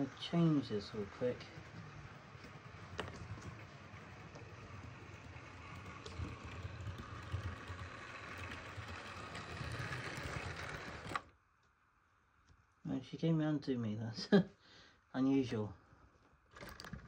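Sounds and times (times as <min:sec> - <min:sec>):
model train motor whirr: 0:00.0 - 0:11.3.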